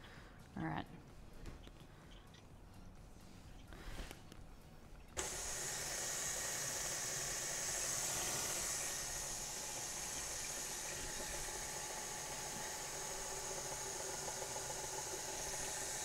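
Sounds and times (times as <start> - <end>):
stand mixer motor running: 5.2 - 16.0.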